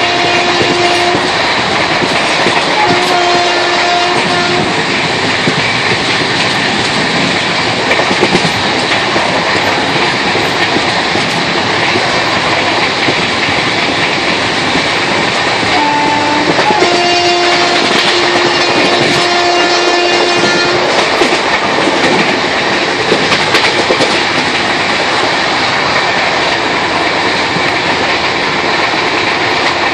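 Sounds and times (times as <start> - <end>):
train horn: 0.0 - 1.4, 2.7 - 4.8, 15.7 - 21.0
train wheels clattering on rails: 0.0 - 29.9.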